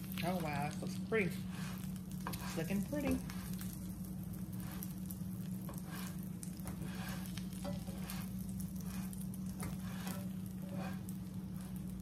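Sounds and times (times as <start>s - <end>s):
sandwich sizzling in a frying pan: 0.0s - 12.0s
spatula scraping a pan: 0.2s - 12.0s.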